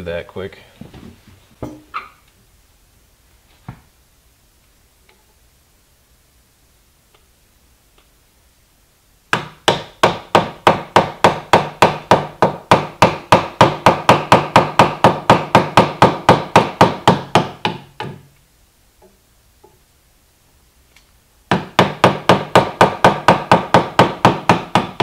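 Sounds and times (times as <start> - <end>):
mallet tapping wood chisel: 9.3 - 18.3, 21.5 - 25.0.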